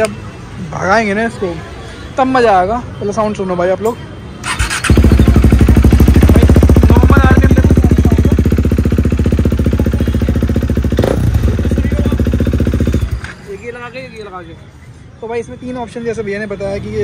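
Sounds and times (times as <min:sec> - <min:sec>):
motorcycle engine idling loudly: 0:04.7 - 0:13.2.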